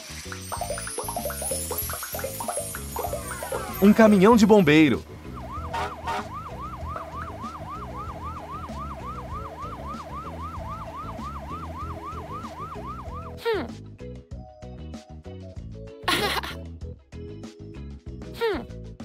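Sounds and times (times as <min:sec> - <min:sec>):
light music: 0:00.0 - 0:19.0
cartoon siren yelping: 0:05.4 - 0:13.4.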